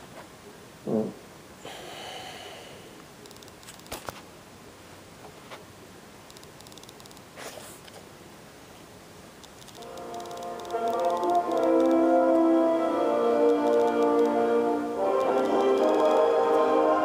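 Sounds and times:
sharp clicks: 3.2 - 4.1, 6.3 - 7.3, 9.4 - 12.0, 13.5 - 14.4, 15.2 - 16.3.

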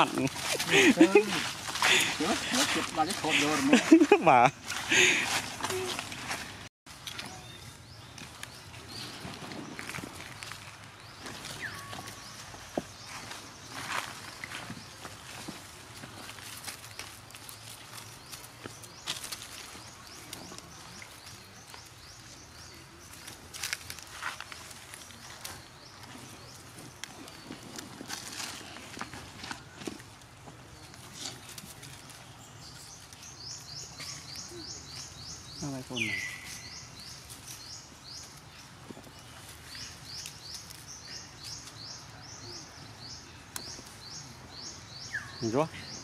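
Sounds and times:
rustling: 0.0 - 35.2
outdoor background noise: 0.0 - 46.0.

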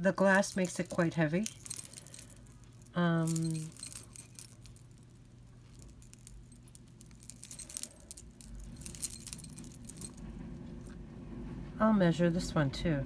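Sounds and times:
charm bracelet jingling: 0.1 - 10.3.

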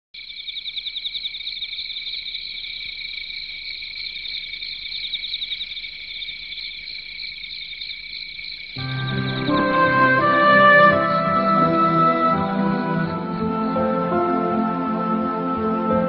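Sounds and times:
crickets chirping: 0.2 - 9.8.

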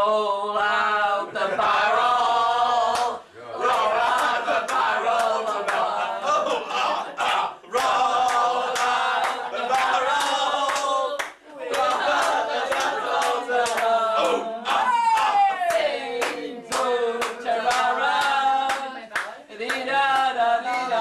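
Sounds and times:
group singing and shouting: 0.0 - 21.0
hand-clapping: 2.9 - 5.9, 7.2 - 20.9.

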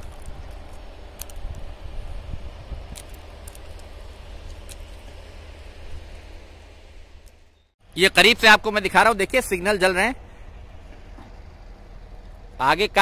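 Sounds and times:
low rumble: 0.0 - 7.8.

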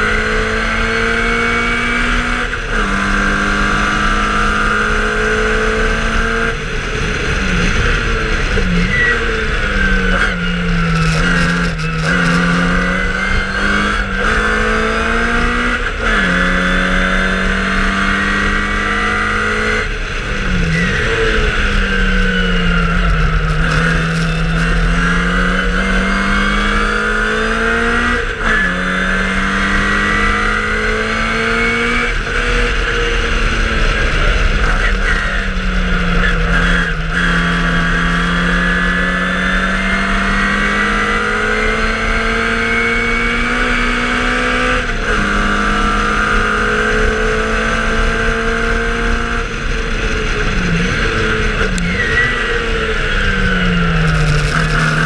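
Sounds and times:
racing car engine revving: 0.0 - 55.0.

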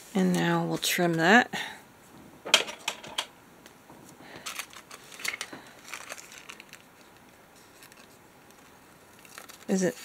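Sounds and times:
paper rustling and crinkling: 4.0 - 10.0.

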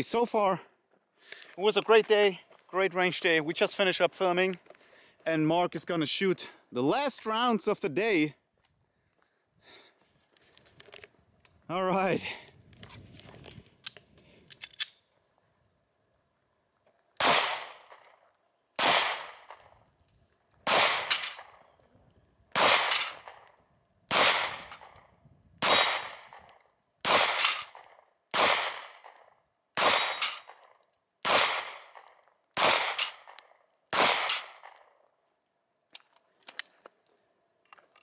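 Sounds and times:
pistol shots with echo: 17.2 - 18.0, 18.8 - 19.7, 20.6 - 21.7, 22.5 - 23.5, 24.1 - 25.0, 25.6 - 34.9.

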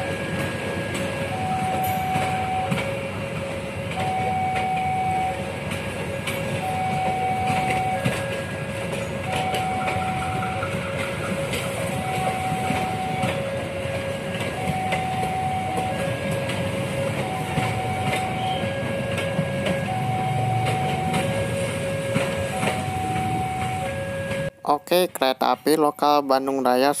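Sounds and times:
train wheels knocking on rail joints: 0.0 - 24.5
level crossing alarm two tones: 1.2 - 3.1, 4.0 - 5.5, 6.5 - 24.5.

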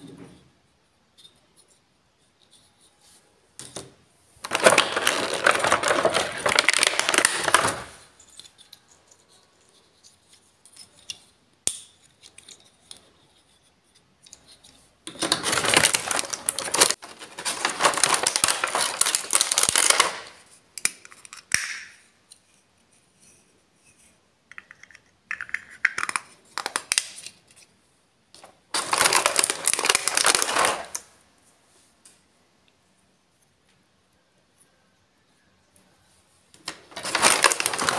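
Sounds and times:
plastic packaging crinkling: 4.4 - 8.1, 15.1 - 20.5, 26.0 - 27.2, 28.7 - 31.1, 36.7 - 37.9.

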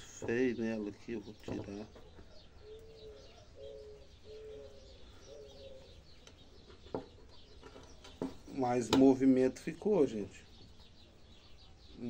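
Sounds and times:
dove cooing: 1.5 - 8.1.

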